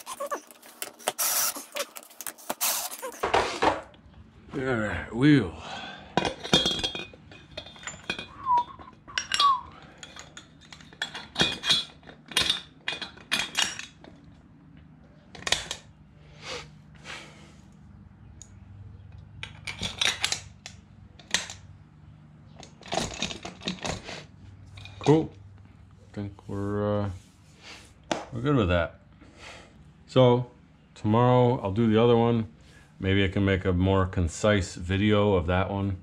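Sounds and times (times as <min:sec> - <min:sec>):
short squeaks: 0:00.0 - 0:03.3
metal clinks and knocks: 0:06.2 - 0:14.3.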